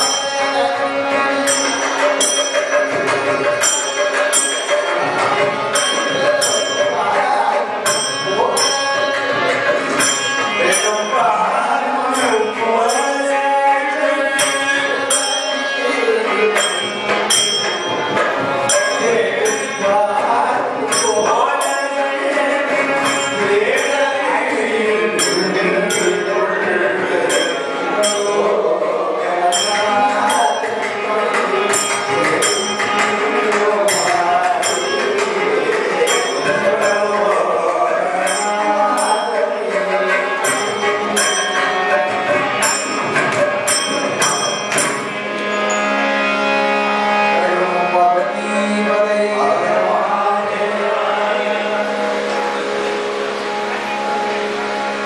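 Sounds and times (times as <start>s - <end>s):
men singing: 0.0s - 45.2s, 47.2s - 53.3s
hand cymbals striking: 0.0s - 46.9s
harmonium: 0.0s - 55.0s
hand drum: 1.7s - 10.1s.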